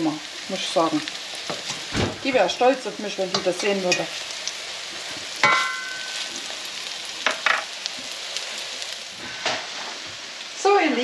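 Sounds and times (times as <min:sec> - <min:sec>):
patties sizzling in pan: 0:00.0 - 0:11.0.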